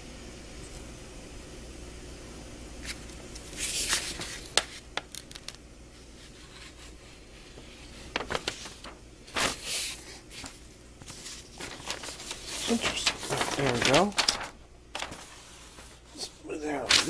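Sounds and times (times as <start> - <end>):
paper rustling: 2.8 - 17.0
paper ticks and taps: 4.5 - 5.6, 8.1 - 8.5.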